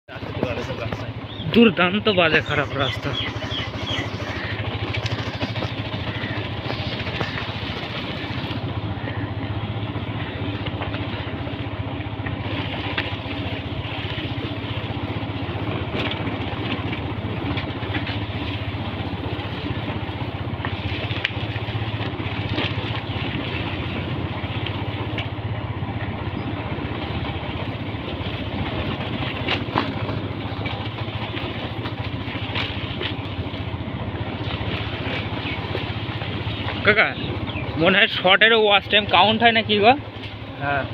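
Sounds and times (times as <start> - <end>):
motorcycle engine running: 0.0 - 40.9
tyres on gravel road: 0.0 - 40.9.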